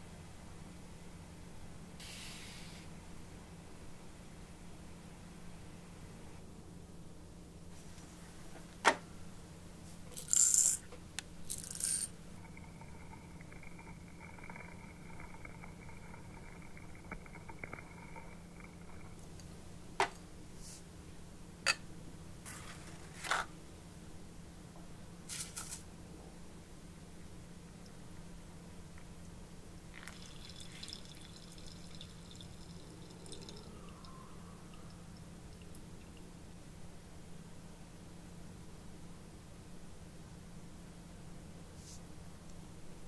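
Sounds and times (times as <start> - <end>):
faint high tone: 33.4 - 35.2.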